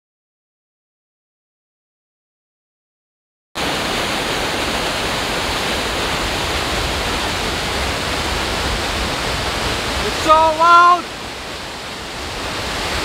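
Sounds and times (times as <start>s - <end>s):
waterfall rushing over rock: 3.6s - 13.0s.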